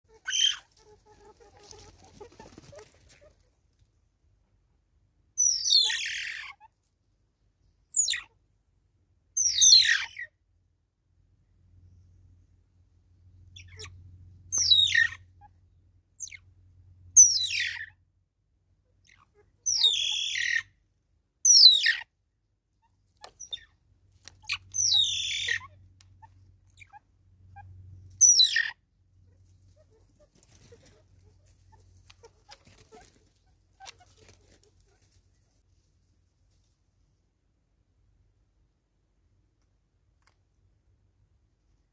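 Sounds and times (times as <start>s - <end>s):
bird calling: 5.4s - 6.6s, 19.1s - 20.7s, 24.4s - 27.0s, 27.6s - 28.8s.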